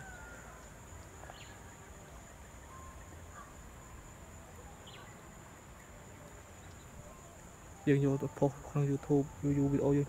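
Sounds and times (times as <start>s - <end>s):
insects droning: 0.0s - 10.0s.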